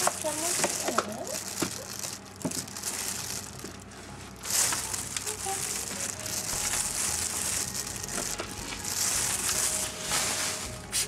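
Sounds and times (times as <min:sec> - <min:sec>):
cat litter scooped and stirred: 0:00.0 - 0:11.0.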